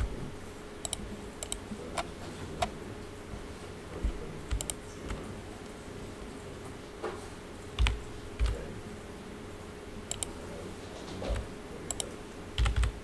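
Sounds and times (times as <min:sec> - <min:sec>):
faint steady hum: 0:00.0 - 0:13.0
keyboard and mouse clicks: 0:00.8 - 0:02.7, 0:04.0 - 0:05.2, 0:07.8 - 0:08.6, 0:10.1 - 0:10.3, 0:11.1 - 0:13.0.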